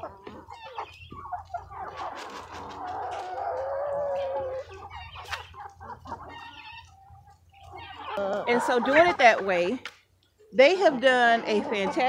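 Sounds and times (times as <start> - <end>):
chickens clucking and chattering: 0.0 - 12.0.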